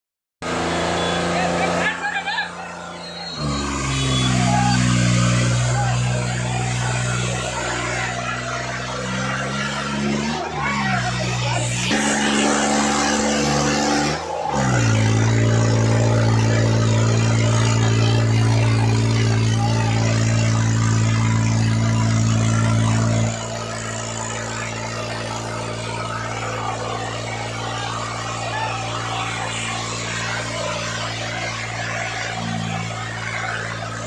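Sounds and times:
tractor diesel engine running hard: 0:00.4 - 0:34.0.

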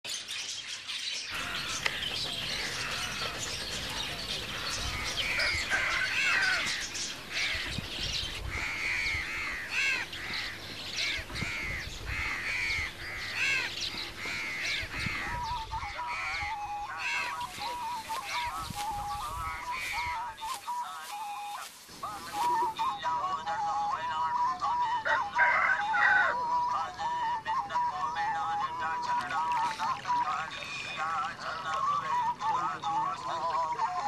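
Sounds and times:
chorus of birds calling: 0:00.1 - 0:34.0
loud arched bird calls: 0:01.2 - 0:23.1
warbling bird call: 0:01.3 - 0:24.0.

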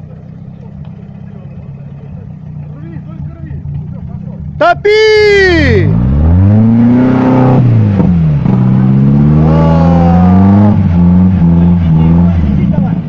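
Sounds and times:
engine revving at full throttle: 0:05.6 - 0:13.0.

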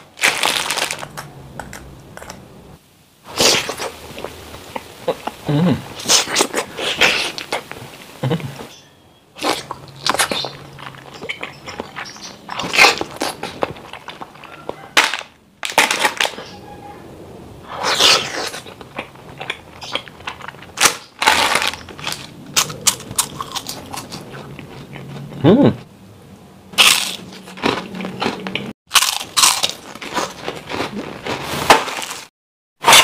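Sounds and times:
crunching bites of crispy snack: 0:00.0 - 0:02.4, 0:09.4 - 0:16.6, 0:17.7 - 0:25.1, 0:26.8 - 0:32.3
sucking and chewing ice cream: 0:17.7 - 0:25.8.

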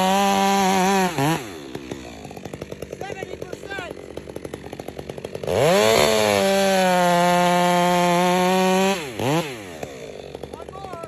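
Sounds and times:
chainsaw idling and revving: 0:00.0 - 0:11.0.

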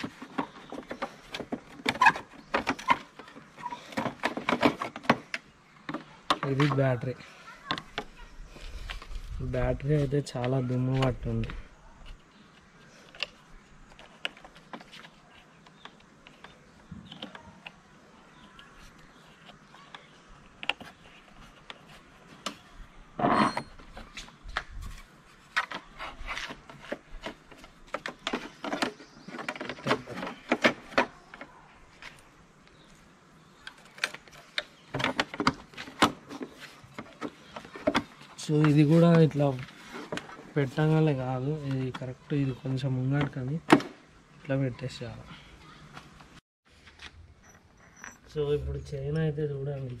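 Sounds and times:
plastic panels clicking and knocking: 0:00.0 - 0:07.0, 0:25.5 - 0:31.5, 0:33.6 - 0:39.2.

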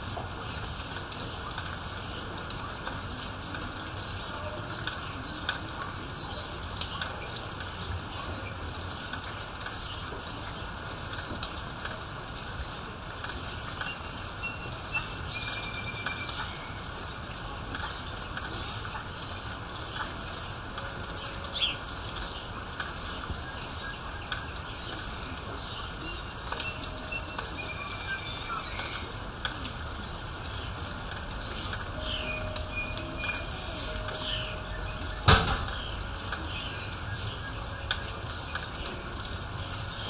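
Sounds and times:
drips and splashes: 0:00.0 - 0:40.0
steady rain: 0:00.0 - 0:40.0
birds chirping and whistling: 0:24.7 - 0:29.1, 0:31.6 - 0:38.6.

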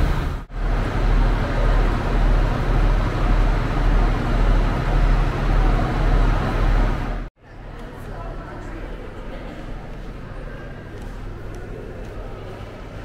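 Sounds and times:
diesel train idling: 0:00.0 - 0:07.3
echoing train shed noise: 0:00.0 - 0:13.0.

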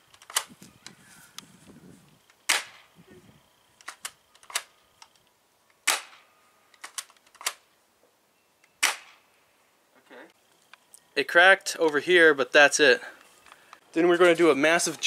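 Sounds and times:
airsoft shotgun shots: 0:02.5 - 0:02.9, 0:05.8 - 0:06.3, 0:08.8 - 0:09.2.

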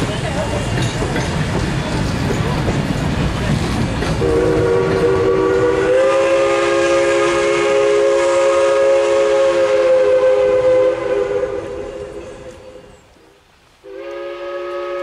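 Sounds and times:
steam locomotive chime whistle: 0:04.2 - 0:13.0, 0:13.8 - 0:15.0.

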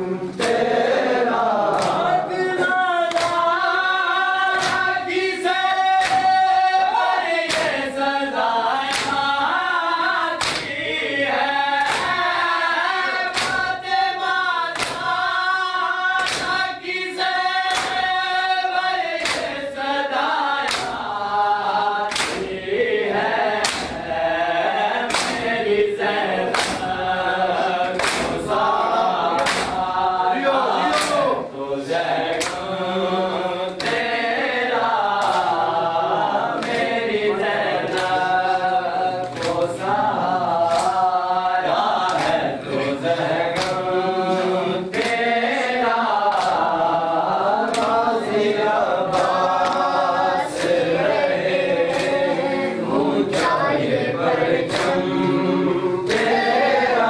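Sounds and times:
mourners chanting a lament: 0:00.0 - 0:57.0
hands slapping chests: 0:00.4 - 0:00.8, 0:01.7 - 0:02.2, 0:03.1 - 0:03.6, 0:04.5 - 0:06.5, 0:07.4 - 0:07.9, 0:08.8 - 0:09.4, 0:10.4 - 0:10.8, 0:11.8 - 0:12.4, 0:13.2 - 0:14.0, 0:14.7 - 0:15.2, 0:16.2 - 0:16.7, 0:17.6 - 0:18.2, 0:19.1 - 0:19.6, 0:20.6 - 0:21.1, 0:22.0 - 0:22.6, 0:23.6 - 0:24.0, 0:25.1 - 0:25.6, 0:26.5 - 0:27.0, 0:27.8 - 0:28.7, 0:29.3 - 0:29.9, 0:30.8 - 0:31.4, 0:32.2 - 0:32.7, 0:33.7 - 0:34.2, 0:35.0 - 0:35.7, 0:36.5 - 0:37.0, 0:37.8 - 0:39.9, 0:40.6 - 0:41.2, 0:42.0 - 0:42.5, 0:43.3 - 0:45.4, 0:46.1 - 0:46.9, 0:47.6 - 0:48.2, 0:49.1 - 0:50.9, 0:51.9 - 0:52.4, 0:53.3 - 0:53.7, 0:54.6 - 0:55.1, 0:56.0 - 0:56.4.

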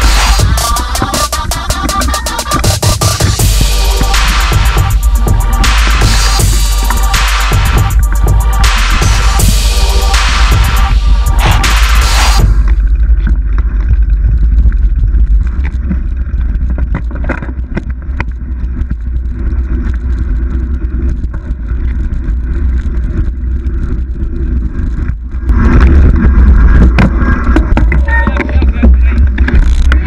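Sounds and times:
bike tyre noise: 0:00.0 - 0:30.0
wind rumble on microphone: 0:03.4 - 0:30.0.

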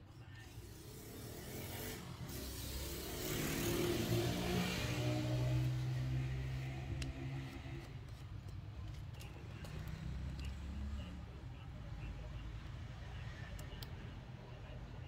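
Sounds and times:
vehicle passing by: 0:00.9 - 0:08.0.

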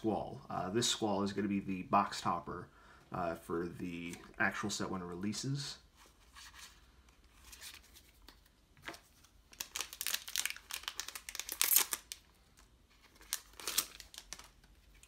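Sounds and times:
wrapper crinkling and tearing: 0:09.5 - 0:15.0.

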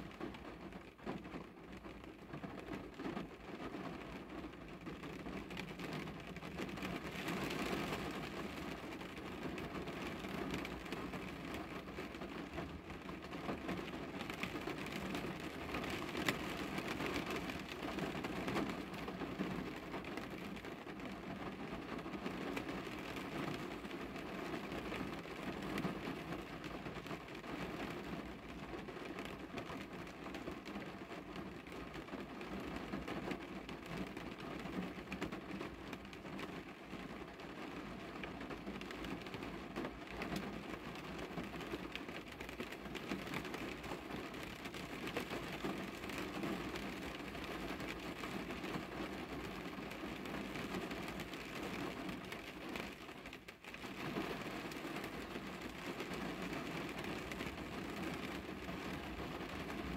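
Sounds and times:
rain on car window: 0:00.0 - 0:59.9.

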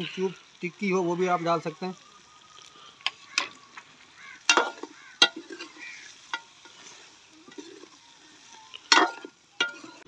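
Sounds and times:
faint sizzle: 0:00.0 - 0:10.0
ladle clanking against metal pot: 0:04.5 - 0:05.7, 0:08.9 - 0:10.0.

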